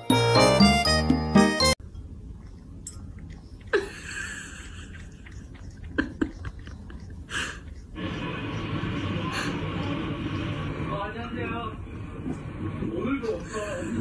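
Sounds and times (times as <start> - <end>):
cat licking water: 2.1 - 11.1.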